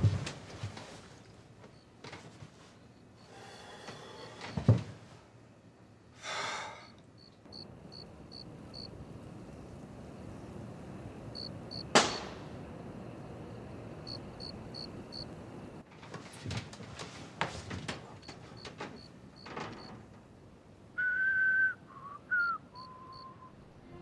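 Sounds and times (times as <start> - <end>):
crickets chirping: 1.1 - 15.8, 17.9 - 24.0
sharp crack: 11.8 - 12.6.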